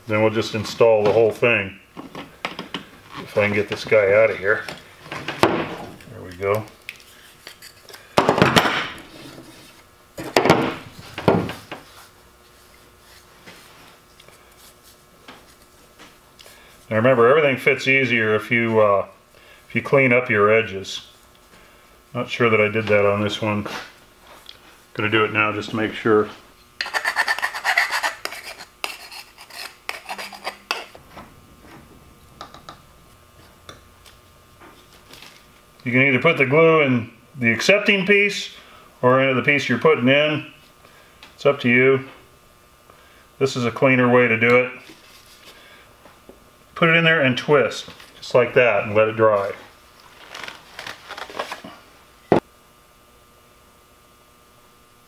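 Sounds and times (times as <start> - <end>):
hand file rasping plastic pipe: 26.8 - 31.0.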